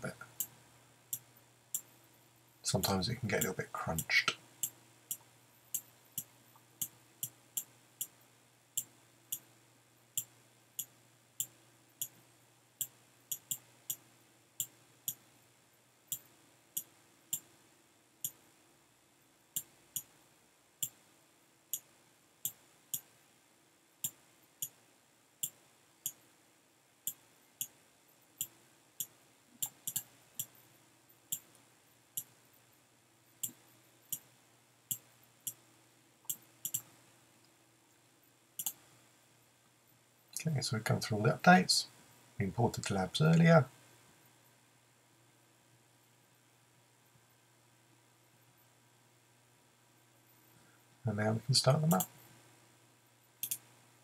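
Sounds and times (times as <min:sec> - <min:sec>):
faint steady hum: 0:00.0 - 0:54.0
computer mouse clicking: 0:28.4 - 0:30.6, 0:36.2 - 0:36.9, 0:38.6 - 0:38.8, 0:53.4 - 0:53.7.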